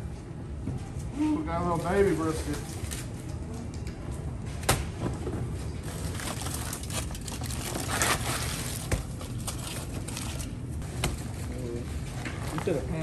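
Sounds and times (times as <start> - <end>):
aluminium foil crinkling: 5.8 - 10.6.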